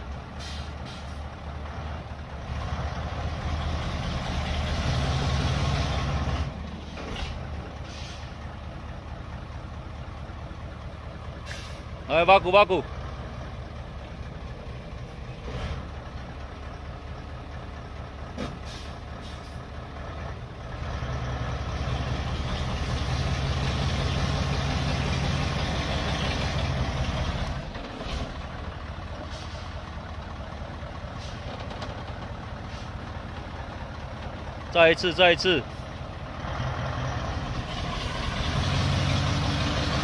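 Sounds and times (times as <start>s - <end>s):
heavy truck diesel engine: 0.0s - 40.0s.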